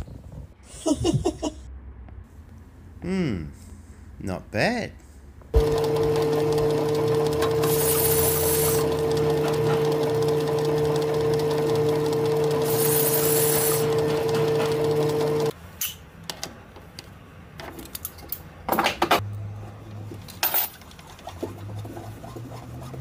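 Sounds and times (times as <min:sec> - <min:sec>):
lathe motor humming: 0:05.6 - 0:15.5.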